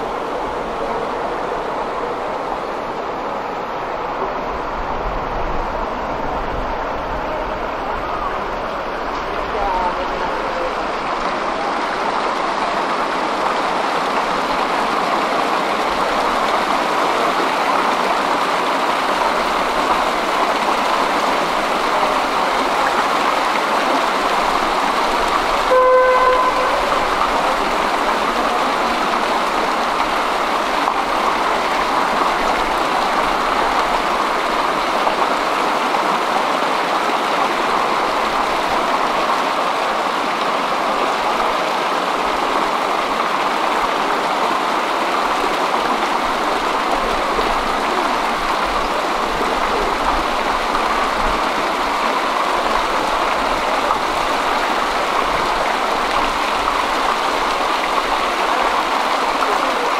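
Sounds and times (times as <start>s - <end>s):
steady rushing noise: 0.0s - 25.7s
short horn beep: 25.7s - 26.9s.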